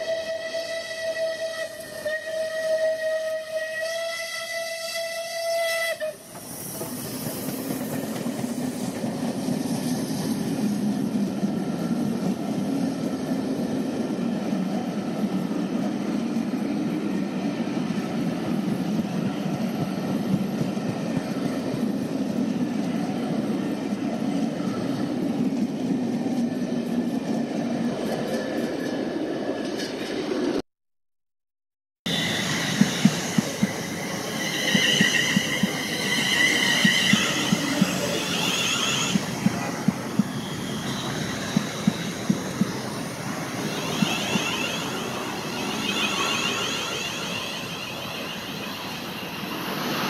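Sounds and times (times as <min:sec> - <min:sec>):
steam whistle: 0:00.0 - 0:06.3, 0:34.3 - 0:39.3
train rumbling over rails: 0:00.0 - 0:30.6, 0:32.1 - 0:50.0.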